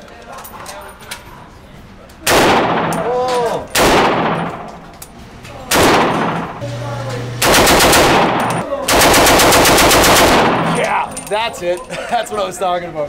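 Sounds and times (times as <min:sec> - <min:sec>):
assault rifle automatic bursts: 0:03.7 - 0:04.6, 0:05.7 - 0:06.6, 0:07.4 - 0:10.8.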